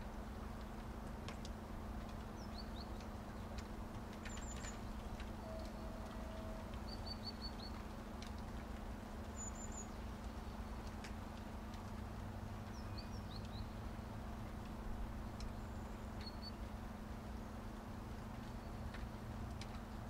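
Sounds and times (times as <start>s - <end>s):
steady rain hiss: 0.0s - 20.0s
sharp drip ticks: 0.1s - 20.0s
small birds chirping: 2.3s - 7.9s, 9.2s - 16.8s.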